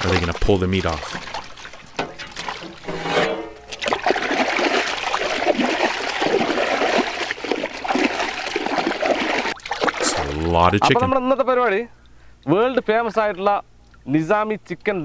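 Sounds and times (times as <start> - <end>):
water splashing in metal pot: 0.0 - 10.7.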